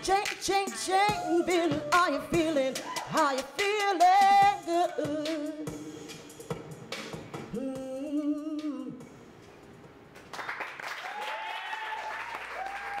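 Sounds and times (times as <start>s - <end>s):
woman singing with vibrato: 0.0s - 5.7s, 7.5s - 9.1s
audience applause: 10.3s - 13.0s
audience whooping cheers: 10.8s - 13.0s.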